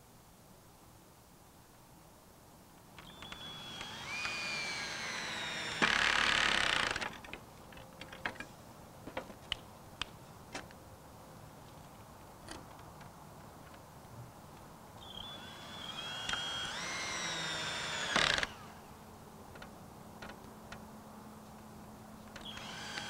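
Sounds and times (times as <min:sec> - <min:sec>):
cordless drill driving screw: 0:03.0 - 0:07.1, 0:15.1 - 0:18.7, 0:22.4 - 0:23.0.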